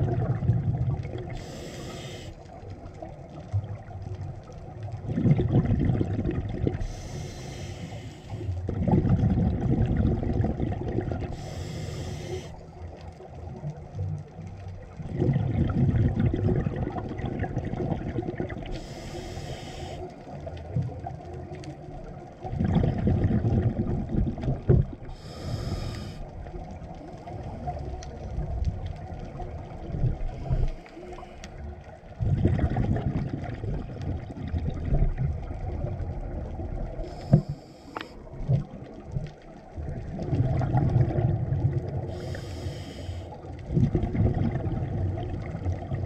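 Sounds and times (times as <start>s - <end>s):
underwater exhale bubbling: 0.0s - 46.0s
regulator inhale hiss: 1.3s - 2.6s, 6.8s - 8.6s, 11.3s - 12.8s, 18.7s - 20.4s, 25.1s - 26.3s, 30.3s - 31.6s, 37.0s - 38.3s, 42.0s - 43.5s.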